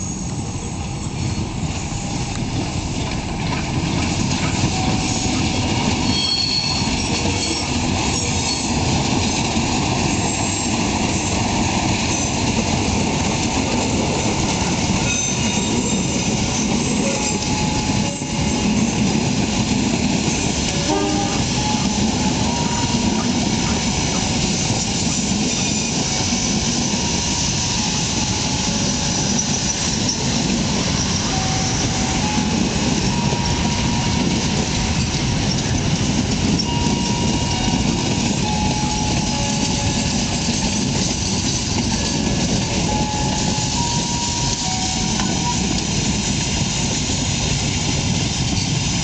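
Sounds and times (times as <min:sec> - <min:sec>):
train wheels rumbling on rails: 0:00.0 - 0:49.0.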